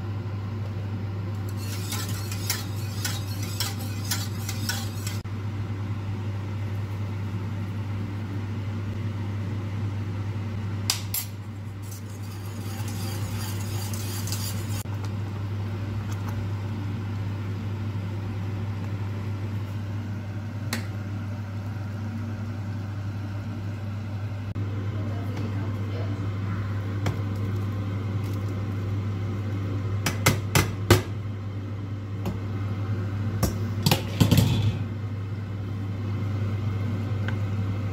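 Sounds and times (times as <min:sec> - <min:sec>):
steady low hum: 0:00.0 - 0:37.9
scraping in pot: 0:01.4 - 0:05.2, 0:11.6 - 0:14.9
whisk stirring sauce in pot: 0:01.4 - 0:05.2, 0:11.7 - 0:14.9.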